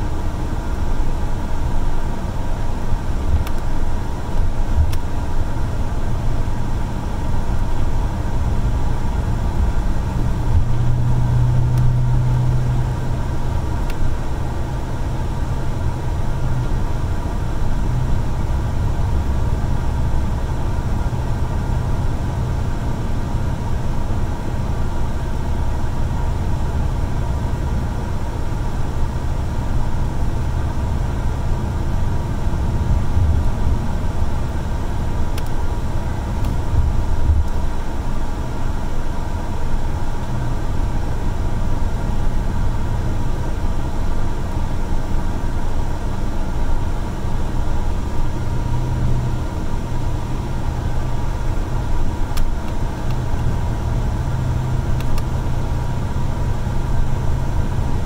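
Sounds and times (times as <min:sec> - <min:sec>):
bus engine and road rumble: 0:00.0 - 0:58.0
faint steady whine: 0:00.0 - 0:58.0.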